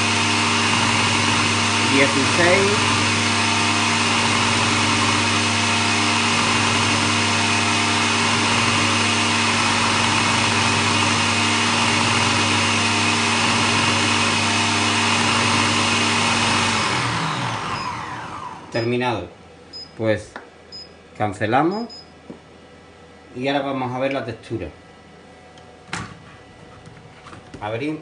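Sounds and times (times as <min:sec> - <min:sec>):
food processor motor whirring: 0:00.0 - 0:19.0.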